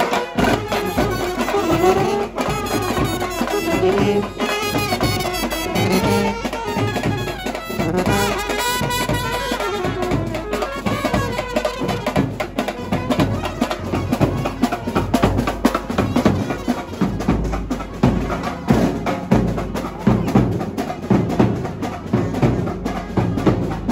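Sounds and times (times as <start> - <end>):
saxophone melody: 0.0 - 18.4
snare and bass drums beat: 0.0 - 23.9
street brass band: 0.0 - 23.9.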